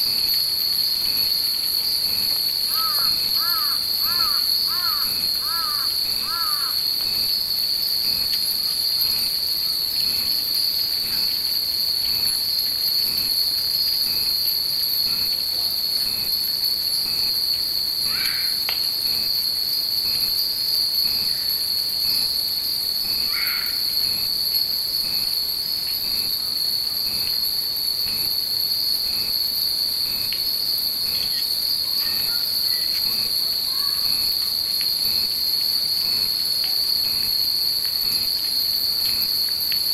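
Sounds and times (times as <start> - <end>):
cicada chorus: 0.0 - 39.9
crow cawing: 2.8 - 6.8, 18.1 - 18.6, 23.3 - 23.8.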